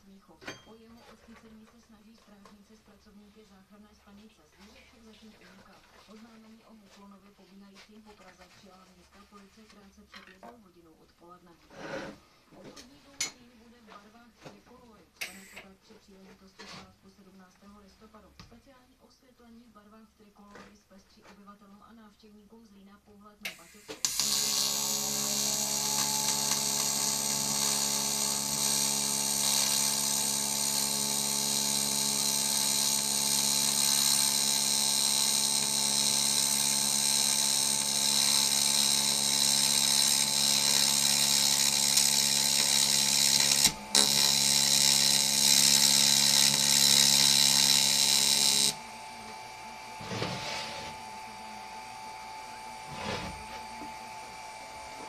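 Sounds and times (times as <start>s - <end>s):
welding arc buzzing and hissing: 23.5s - 55.0s.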